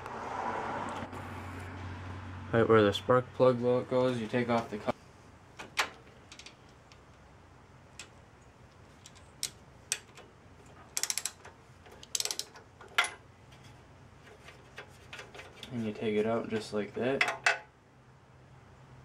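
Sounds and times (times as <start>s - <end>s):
ratchet wrench clicking: 10.9s - 12.6s.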